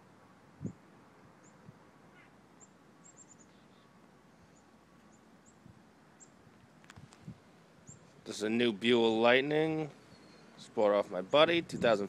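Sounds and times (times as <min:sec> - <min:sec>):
faint high bird chirps: 0:01.4 - 0:06.4, 0:07.8 - 0:08.2, 0:10.0 - 0:10.6.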